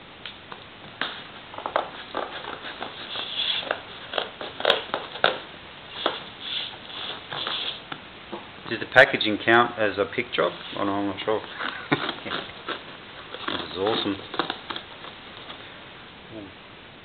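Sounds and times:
packing tape crackling and tearing: 0:01.0 - 0:07.8, 0:11.5 - 0:15.6.

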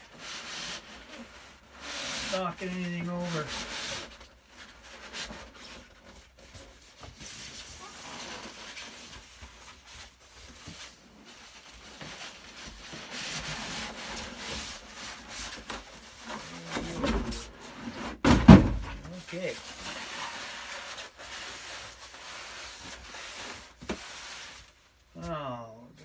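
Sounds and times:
foam scraping against cardboard: 0:00.0 - 0:24.8
cardboard box bumps: 0:16.6 - 0:19.2.

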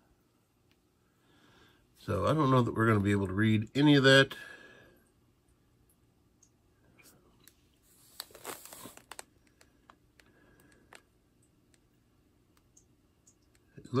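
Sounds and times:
cardboard crinkling: 0:07.9 - 0:10.0.

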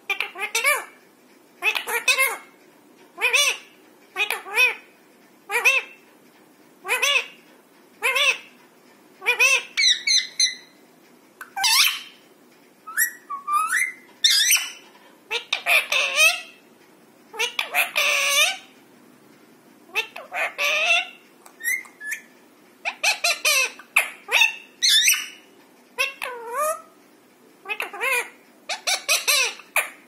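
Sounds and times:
parakeets squawking: 0:00.1 - 0:00.9, 0:01.6 - 0:02.4, 0:03.2 - 0:04.8, 0:05.5 - 0:06.0, 0:06.8 - 0:07.4, 0:08.0 - 0:08.5, 0:09.2 - 0:10.8, 0:11.4 - 0:12.2, 0:12.9 - 0:16.6, 0:17.3 - 0:18.7, 0:19.9 - 0:26.9, 0:27.6 - 0:30.0.

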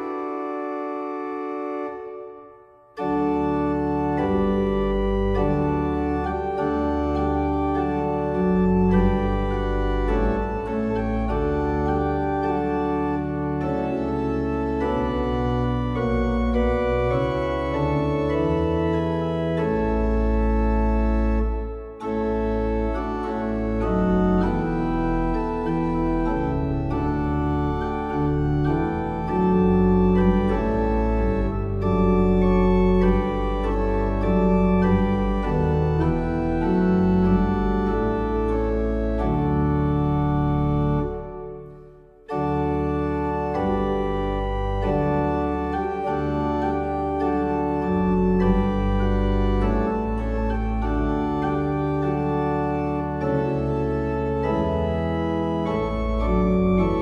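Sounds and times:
organ-like held chords: 0:00.0 - 0:57.0.

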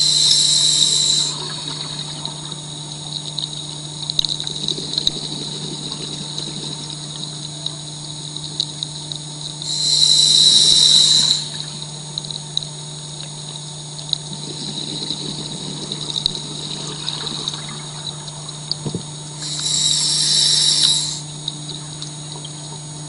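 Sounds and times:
steady low hum: 0:00.0 - 0:23.0
rush of bubbles underwater: 0:00.5 - 0:08.0, 0:14.2 - 0:19.8.

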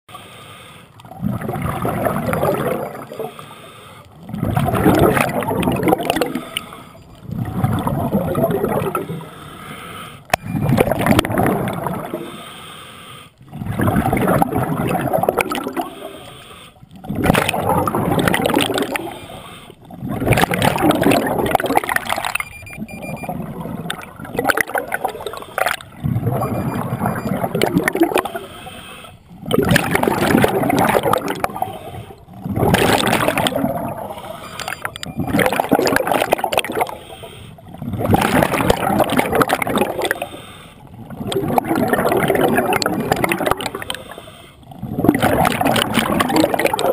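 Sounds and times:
diver breathing through regulator: 0:00.1 - 0:01.0, 0:03.2 - 0:04.4, 0:08.8 - 0:10.4, 0:12.1 - 0:13.6, 0:15.8 - 0:17.0, 0:18.9 - 0:19.9, 0:28.0 - 0:29.4, 0:36.8 - 0:37.8, 0:40.1 - 0:41.0, 0:43.8 - 0:44.8
gurgling exhaled bubbles: 0:01.0 - 0:03.4, 0:04.1 - 0:09.3, 0:10.3 - 0:12.4, 0:13.5 - 0:28.7, 0:29.3 - 0:46.9.

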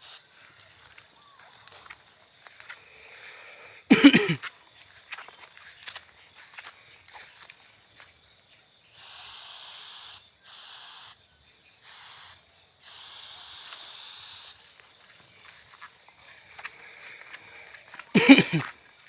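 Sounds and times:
pressure sprayer spraying: 0:00.0 - 0:00.9, 0:08.9 - 0:11.2, 0:11.8 - 0:15.7.

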